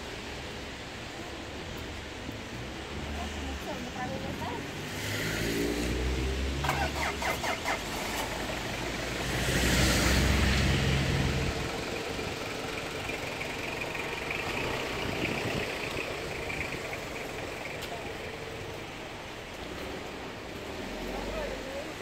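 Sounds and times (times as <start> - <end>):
tyres hissing on wet road: 0.0 - 22.0
vehicle engine idling: 11.3 - 19.6.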